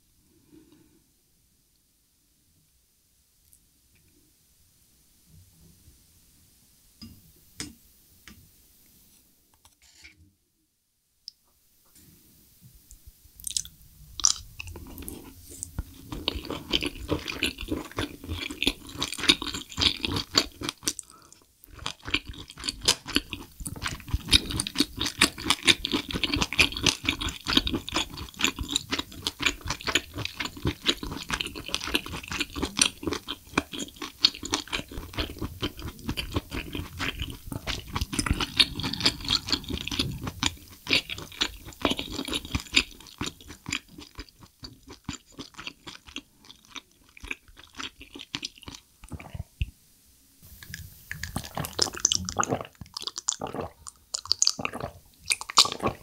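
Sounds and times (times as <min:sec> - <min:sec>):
wet chewing clicks and squelches: 0:13.4 - 0:49.7, 0:50.6 - 0:56.0.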